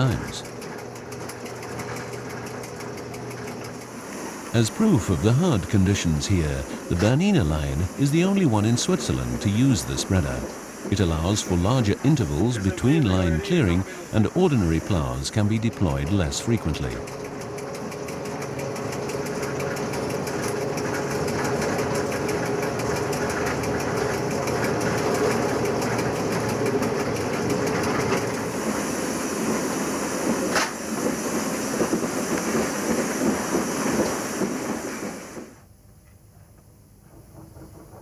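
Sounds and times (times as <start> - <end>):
steady hum: 0.0 - 31.8
train mechanical running noise: 0.0 - 38.0.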